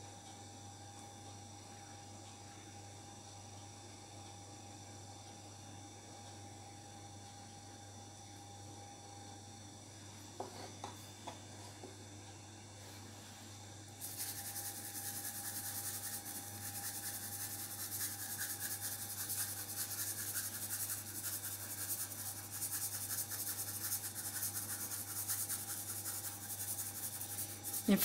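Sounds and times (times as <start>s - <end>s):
sugar grains pattering: 14.0s - 28.0s.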